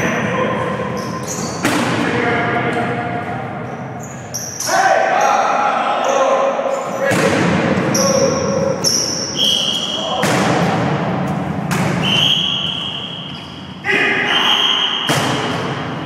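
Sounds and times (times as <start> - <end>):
sneakers squeaking on hardwood: 0.9 - 1.8, 7.9 - 10.2, 11.9 - 13.8.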